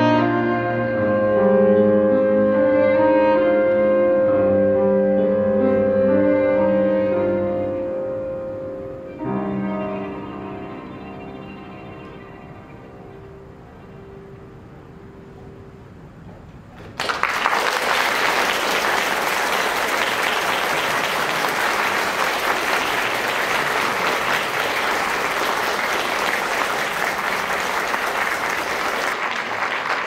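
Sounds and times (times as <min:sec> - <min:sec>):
audience applause: 0:16.9 - 0:30.0.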